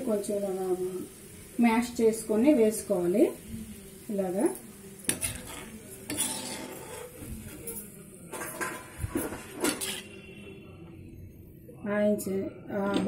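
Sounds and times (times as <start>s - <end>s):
metal spoon scraping a steel bowl: 5.1s - 10.3s.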